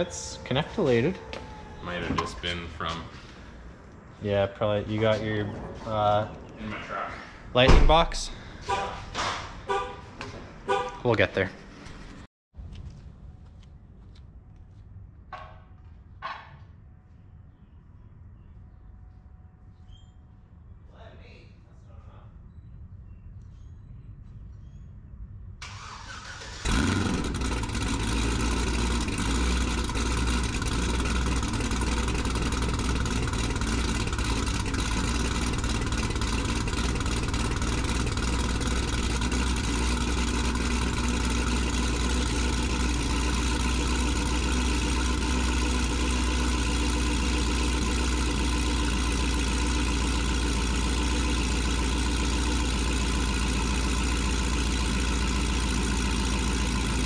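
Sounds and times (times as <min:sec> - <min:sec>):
car engine starting and idling: 0:00.0 - 0:12.2, 0:25.6 - 0:57.0.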